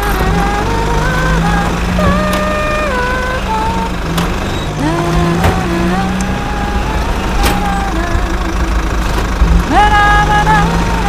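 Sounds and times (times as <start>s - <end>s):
low hum: 0.0s - 11.0s
motor whine: 0.0s - 11.0s.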